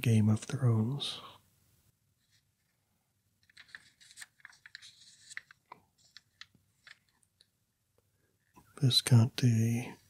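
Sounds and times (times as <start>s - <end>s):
glossy paper page rustling: 2.2s - 7.5s.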